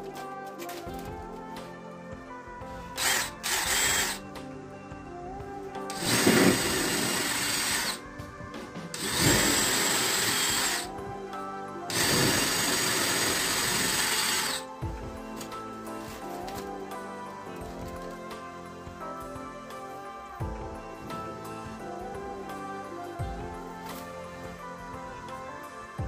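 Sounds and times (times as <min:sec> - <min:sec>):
background music: 0:00.0 - 0:26.0
cordless drill boring into drywall: 0:02.9 - 0:04.2, 0:05.9 - 0:08.0, 0:09.0 - 0:10.9, 0:11.9 - 0:14.7.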